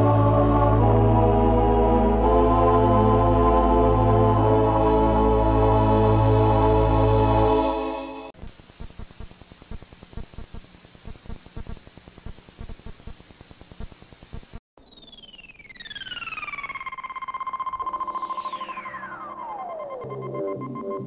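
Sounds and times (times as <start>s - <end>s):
tape hiss: 8.4s - 14.6s
high whine: 8.4s - 21.0s
synthesizer tone gliding down: 14.8s - 21.0s.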